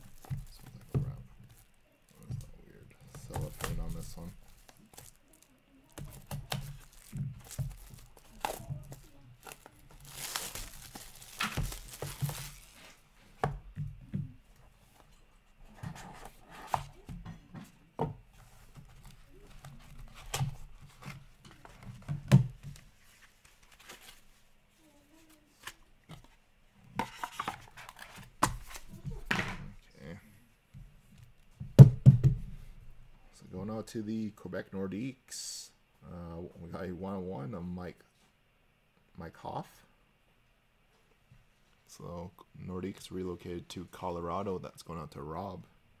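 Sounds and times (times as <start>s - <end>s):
cellophane tearing and crinkling: 3.4s - 13.0s.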